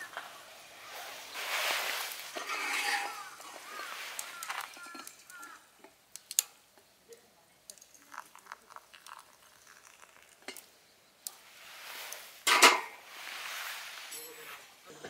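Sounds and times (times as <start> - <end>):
hiss: 0.2 - 2.5, 11.3 - 14.8.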